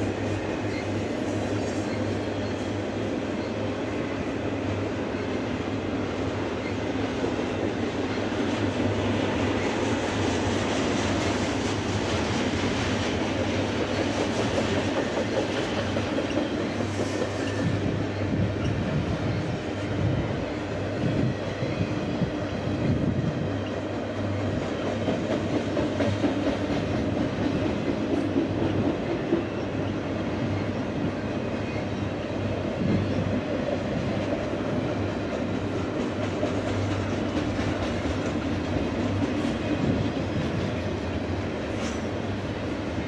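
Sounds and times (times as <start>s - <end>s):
freight train cars rolling: 0.0s - 43.0s
wheels clicking on rail: 32.8s - 42.9s.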